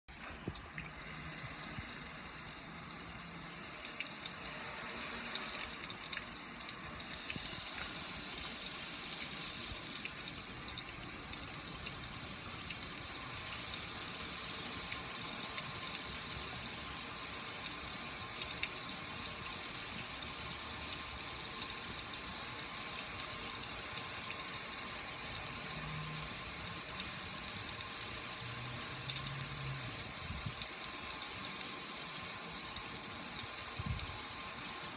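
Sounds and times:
water splashing on metal grill: 0.1 - 16.0.

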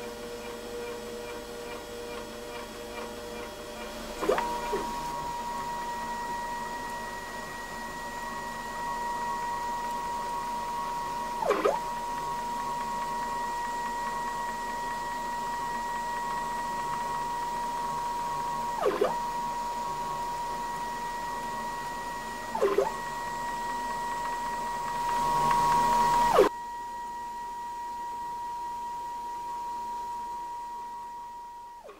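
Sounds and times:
stepper motor whine: 3.7 - 31.9.

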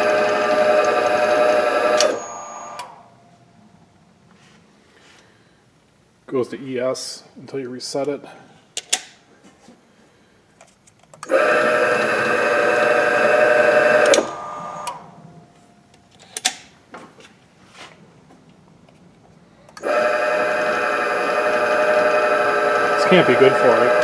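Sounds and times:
drill press motor humming: 0.0 - 3.1, 11.2 - 15.3, 19.7 - 24.0
motor braking tone: 0.0 - 3.2, 11.2 - 15.4, 19.8 - 24.0
clicks: 1.9 - 3.0, 13.8 - 15.1.

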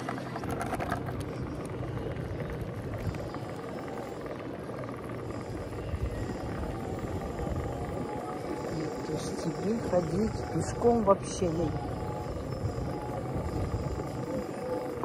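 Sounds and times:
bicycle tyres rumbling on bricks: 0.0 - 9.0
wind buffeting microphone: 0.0 - 15.0.

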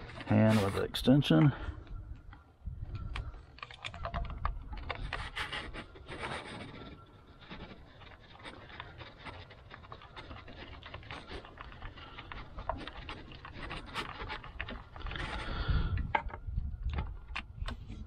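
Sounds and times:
dog panting: 5.0 - 15.5.

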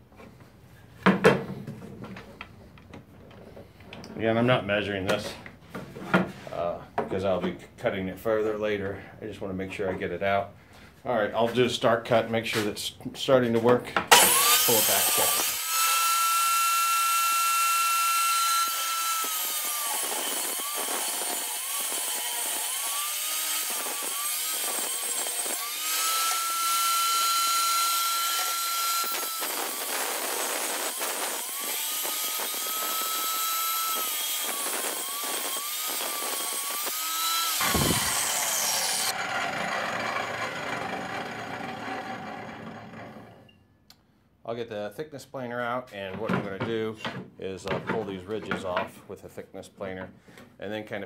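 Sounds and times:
table saw cutting wood: 14.1 - 43.4
saw blade spinning down: 14.1 - 43.5.

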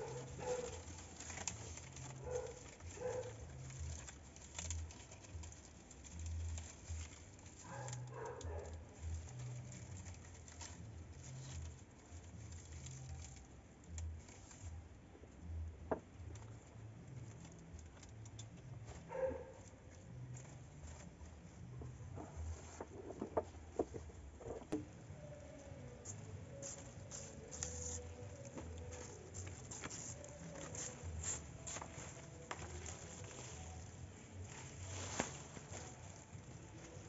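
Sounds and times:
palm fronds rustling: 0.0 - 14.8, 24.4 - 37.0.

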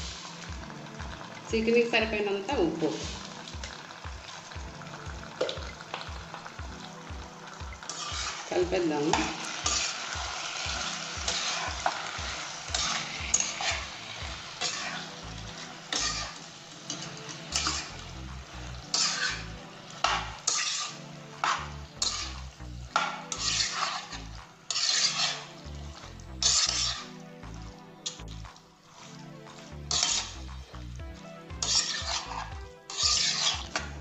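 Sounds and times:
metal spatula scraping a pan: 0.0 - 0.5, 2.6 - 4.6, 7.8 - 27.2, 28.0 - 30.5, 31.4 - 34.0
meat sizzling: 0.0 - 34.0.

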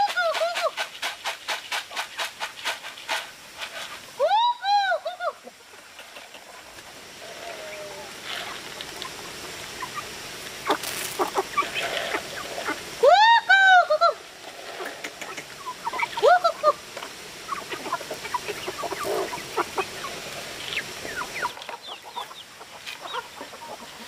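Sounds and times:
farm fowl calling: 5.3 - 12.9, 14.8 - 24.0.

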